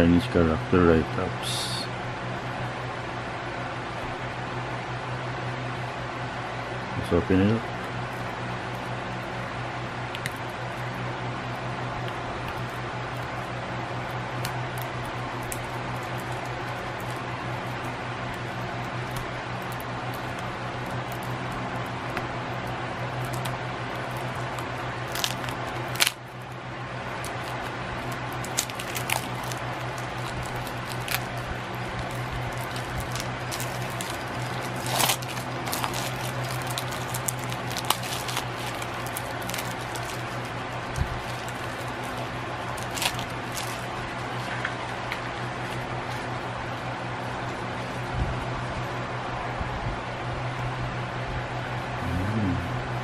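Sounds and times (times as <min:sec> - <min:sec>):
steady low hum: 0:00.0 - 0:53.0
cellophane crinkling: 0:23.0 - 0:45.0.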